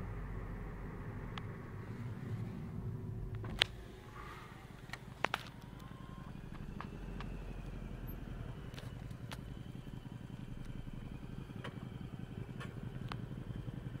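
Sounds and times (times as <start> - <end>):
motorcycle engine at low revs: 4.7 - 14.0.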